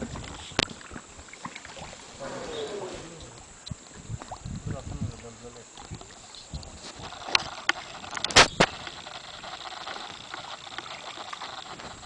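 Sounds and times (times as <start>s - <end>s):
soft wash of water: 0.0s - 12.0s.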